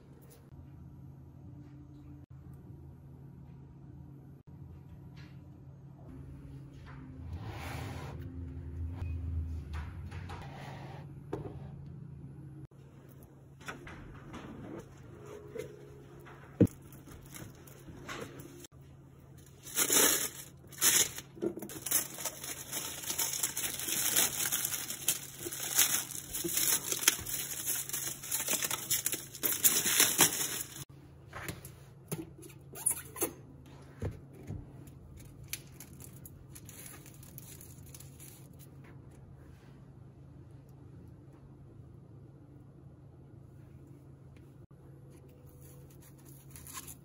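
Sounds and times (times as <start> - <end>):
plastic wrap crinkling and tearing: 19.4 - 30.9, 35.2 - 38.7, 45.5 - 47.0.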